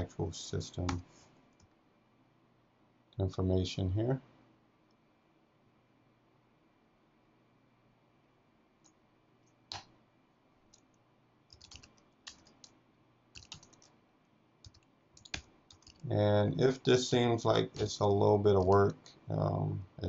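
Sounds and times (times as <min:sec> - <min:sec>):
computer keyboard typing: 0:11.5 - 0:12.8, 0:13.4 - 0:14.0, 0:14.6 - 0:16.1, 0:18.6 - 0:19.1.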